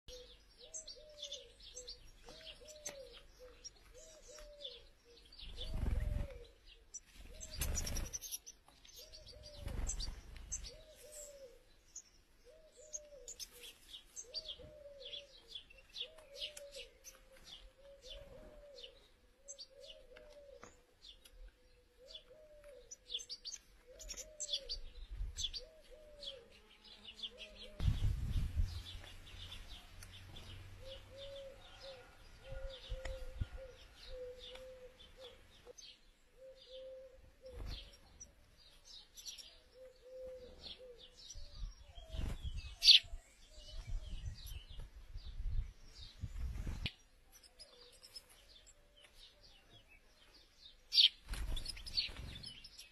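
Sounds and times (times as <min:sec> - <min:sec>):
lower bird call: 0:29.7 - 0:35.8, 0:36.4 - 0:38.0.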